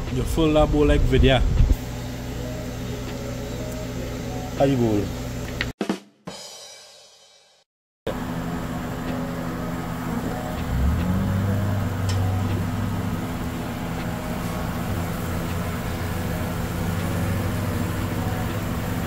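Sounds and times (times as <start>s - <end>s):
low motor drone: 8.1s - 19.0s.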